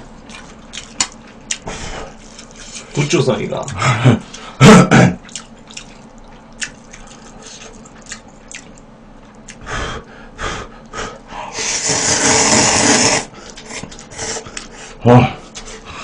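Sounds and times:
slurping noodles: 11.5s - 14.7s.

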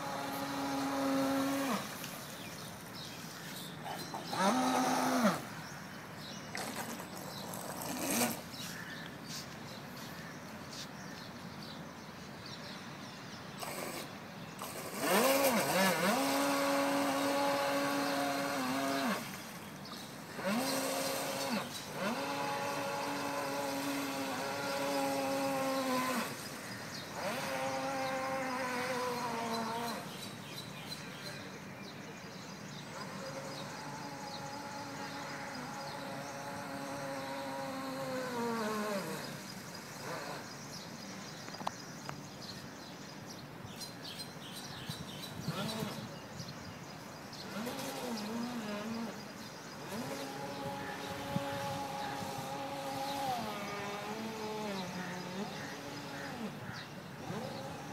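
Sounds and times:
electric motor whining: 0.0s - 2.4s, 4.1s - 5.5s, 13.6s - 30.2s, 32.9s - 40.8s, 45.4s - 46.2s, 47.4s - 57.9s.

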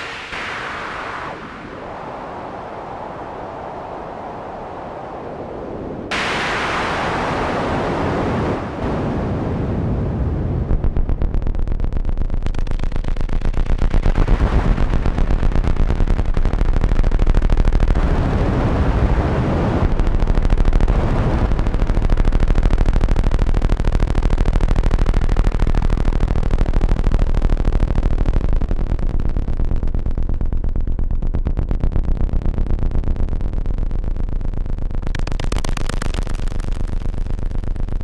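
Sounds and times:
synthesizer low pulsing drone: 8.8s - 38.0s.

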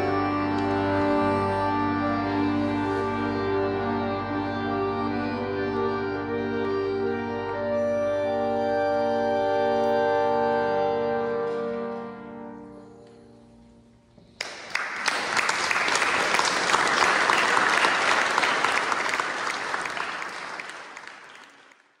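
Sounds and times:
accordion ensemble chord: 0.0s - 14.2s
audience applause: 14.4s - 22.0s.

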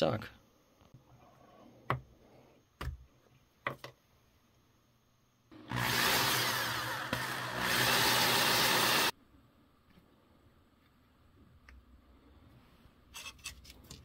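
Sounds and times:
electric drill boring: 5.6s - 9.1s.

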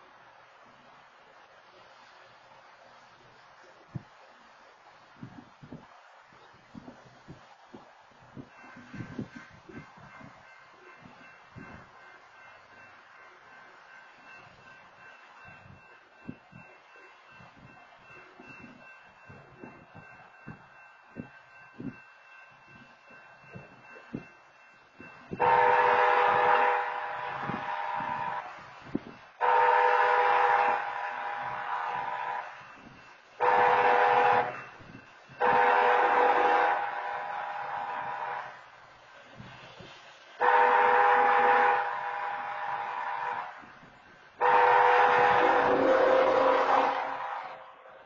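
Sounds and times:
locomotive air horn blasts: 25.1s - 38.8s, 40.3s - 47.6s.

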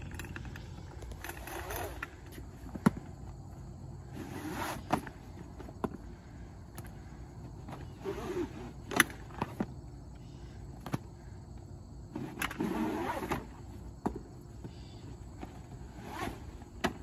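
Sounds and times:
hose sliding over pavement: 3.9s - 5.9s.

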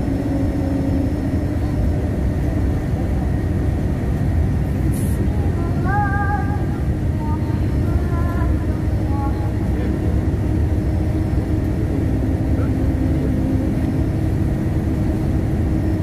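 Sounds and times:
bus engine rumble: 0.0s - 16.0s
road noise: 0.0s - 16.0s.

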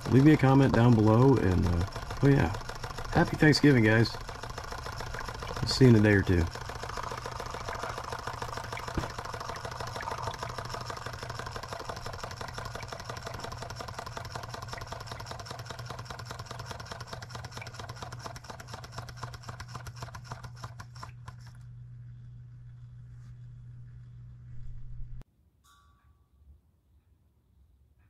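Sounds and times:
steady low hum: 0.0s - 15.8s, 20.8s - 25.2s
model engine clattering: 0.0s - 21.6s.

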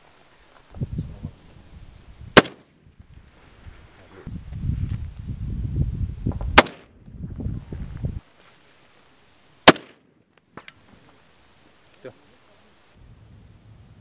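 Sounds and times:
rifle shots: 2.4s - 2.8s, 6.6s - 6.9s, 9.6s - 10.1s.

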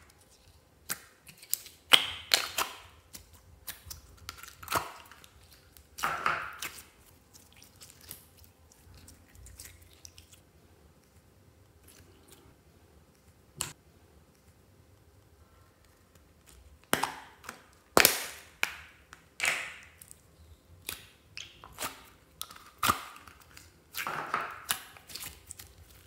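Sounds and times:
slime popping and squelching: 0.0s - 10.4s, 16.0s - 26.0s.

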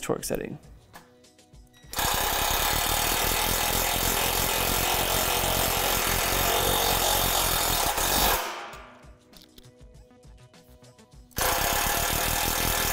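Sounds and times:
impact driver hammering: 1.9s - 9.0s, 11.4s - 12.9s.

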